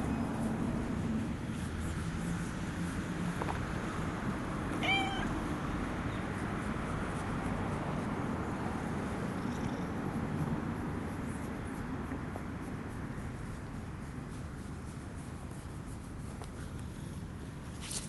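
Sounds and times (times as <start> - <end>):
steady background noise: 0.0 - 18.0
cat meowing: 4.7 - 5.4.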